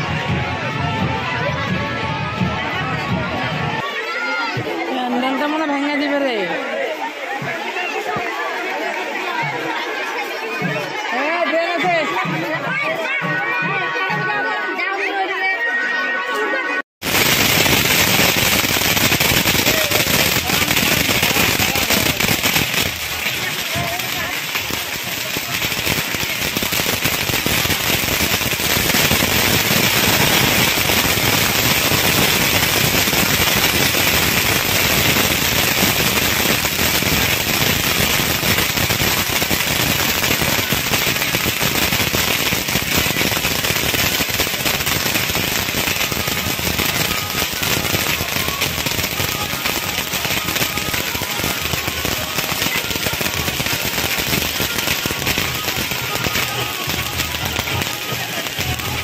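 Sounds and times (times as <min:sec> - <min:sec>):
firecrackers bursting: 0:17.0 - 0:59.0.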